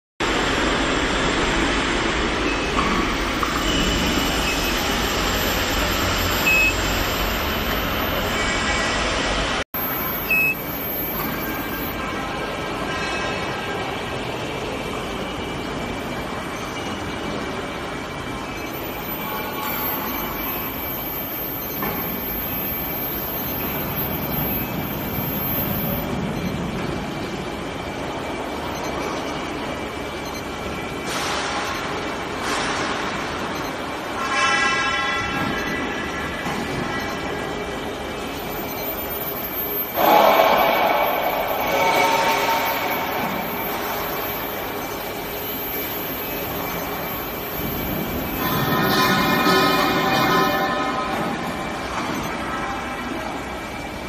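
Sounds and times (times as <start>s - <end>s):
workshop machine noise: 0.2s - 54.0s
short high beeps: 3.5s - 8.4s, 9.8s - 12.0s, 18.6s - 26.6s, 38.2s - 51.0s
faint high-pitched whine: 9.8s - 12.4s, 18.6s - 26.6s, 38.2s - 50.9s.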